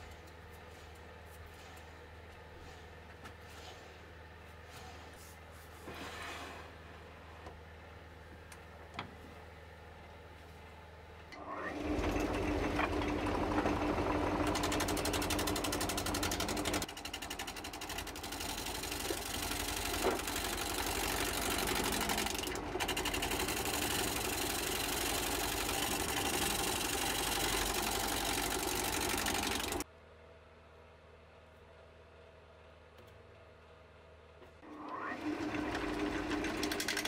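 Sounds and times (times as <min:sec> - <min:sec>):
lathe motor humming: 0:11.4 - 0:29.8, 0:34.7 - 0:37.0
gouge rasping on spinning wood: 0:12.0 - 0:29.8.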